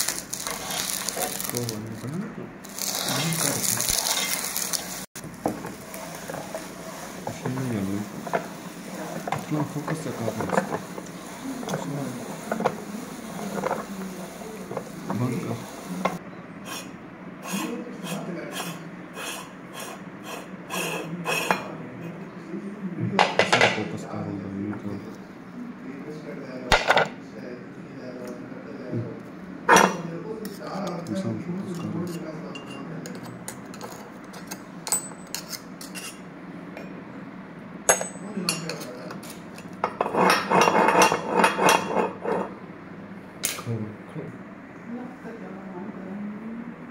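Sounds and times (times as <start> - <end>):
meat grinder crunching ice cream cone: 0.0 - 16.1
steady low hum: 0.0 - 46.9.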